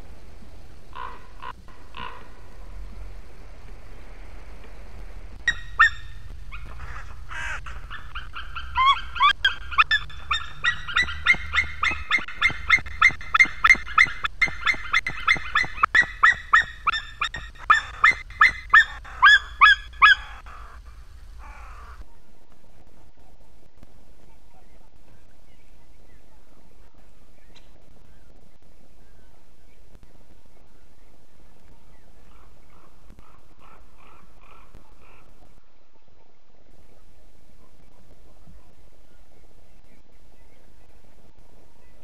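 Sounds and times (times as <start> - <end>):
steady low rumble: 0.0 - 22.0
eagle calling high repeated notes: 5.2 - 22.0.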